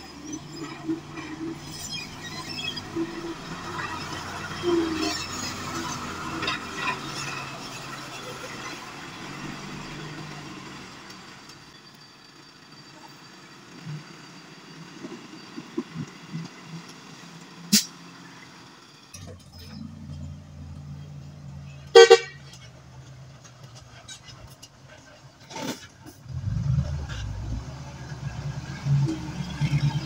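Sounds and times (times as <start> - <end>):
truck horn toot: 21.8 - 22.6.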